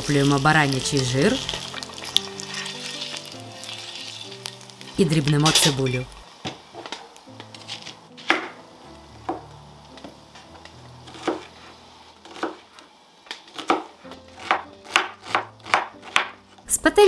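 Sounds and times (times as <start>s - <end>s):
faint background music: 0.0s - 17.0s
knife chopping onion: 11.1s - 11.5s, 12.2s - 12.7s, 13.5s - 16.5s.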